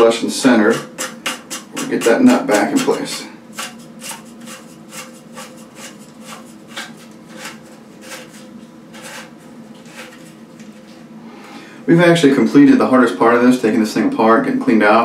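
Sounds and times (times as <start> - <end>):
plastic thread scraping: 3.6 - 10.9.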